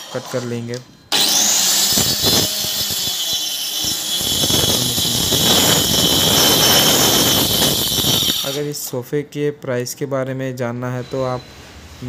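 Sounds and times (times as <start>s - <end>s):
circular saw cutting wood: 0.0s - 8.8s.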